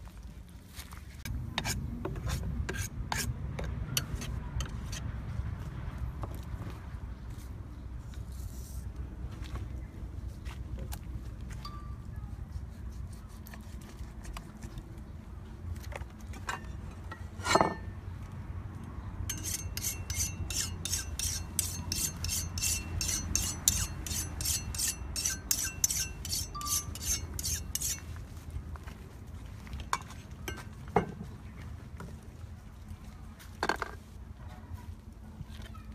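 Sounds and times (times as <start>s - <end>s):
knife rasping on whetstone: 19.3s - 28.0s.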